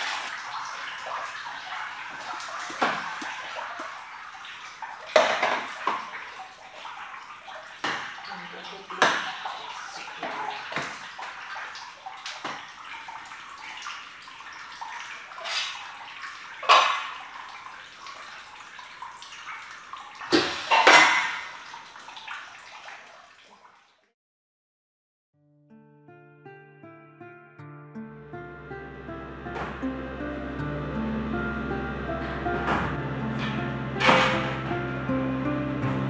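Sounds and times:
whey sloshing and dripping: 0:00.0 - 0:24.1.

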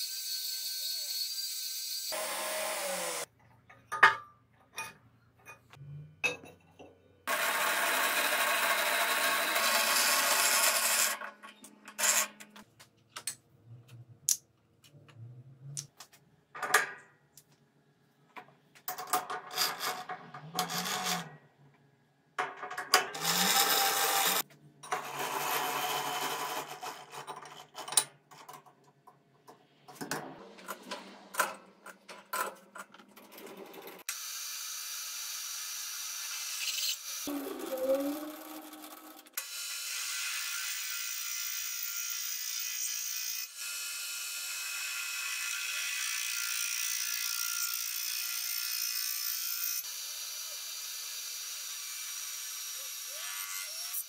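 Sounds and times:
power tool noise: 0:00.0 - 0:03.3, 0:07.3 - 0:11.2, 0:23.2 - 0:24.4
belt grinder grinding steel: 0:07.3 - 0:11.3, 0:23.1 - 0:27.1.

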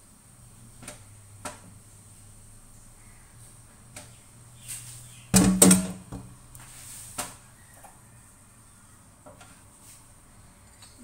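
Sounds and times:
wok clanking down: 0:05.4 - 0:06.3.

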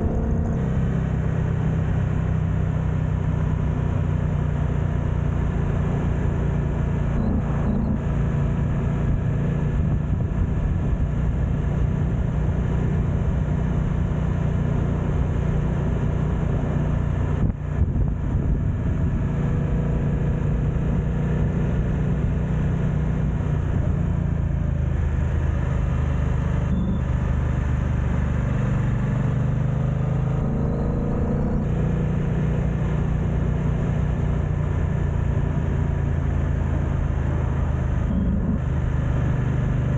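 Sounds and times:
motorcycle engine drone: 0:00.0 - 0:39.9
wind noise on microphone: 0:08.9 - 0:12.7, 0:17.3 - 0:19.8.

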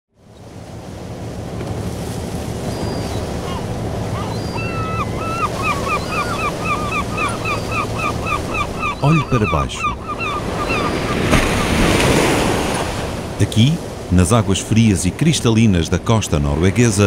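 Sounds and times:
waves and wind rushing: 0:00.1 - 0:17.0
seabird chirping calls: 0:02.5 - 0:12.9.

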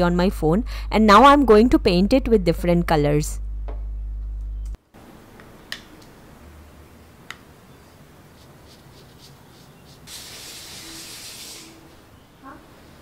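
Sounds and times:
brush scratching on fabric: 0:08.2 - 0:11.9.

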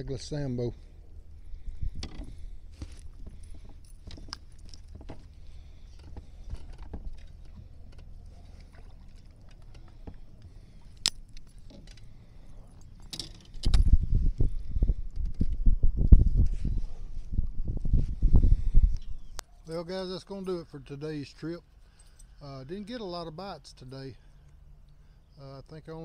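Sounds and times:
low thumps of handling noise: 0:01.1 - 0:12.0.

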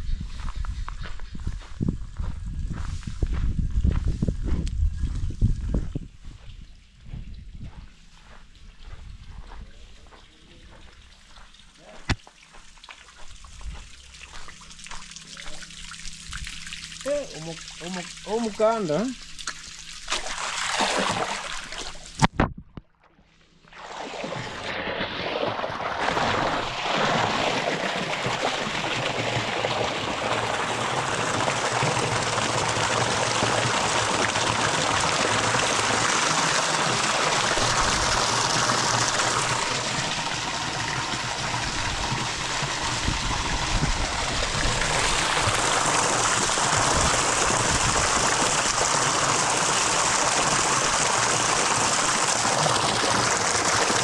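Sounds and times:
running water rushing: 0:10.7 - 0:22.3, 0:23.6 - 0:54.0.

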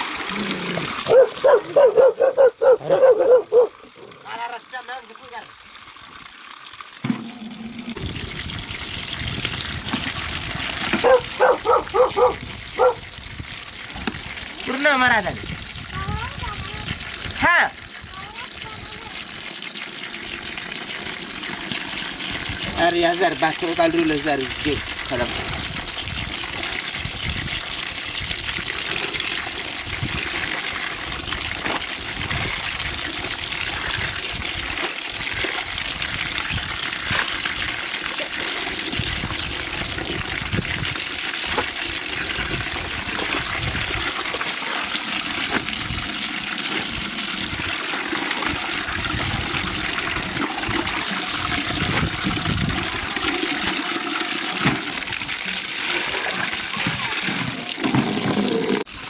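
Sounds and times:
water pouring into plastic bucket: 0:00.0 - 0:01.8, 0:03.4 - 0:59.0.

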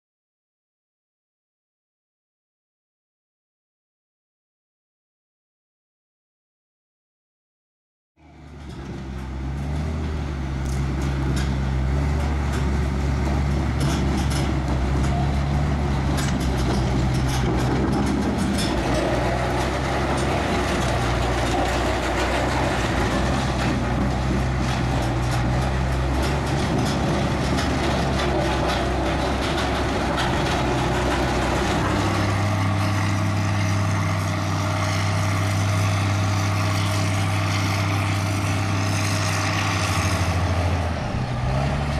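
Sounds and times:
diesel engine running: 0:08.2 - 0:41.9
clicking and rattling: 0:16.0 - 0:32.3.

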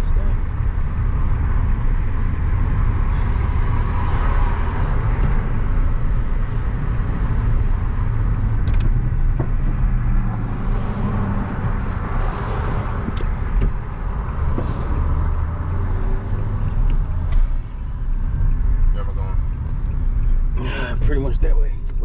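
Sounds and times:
car engine and road noise: 0:00.0 - 0:22.0.

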